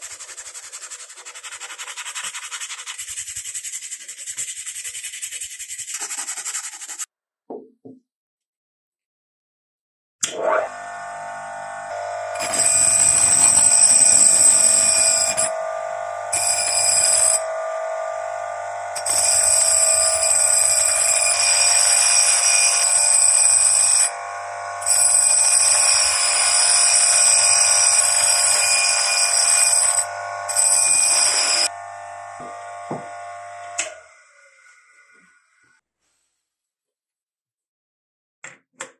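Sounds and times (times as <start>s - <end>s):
bench grinder humming: 10.4s - 35.7s
high ringing grinding whine: 10.7s - 35.8s.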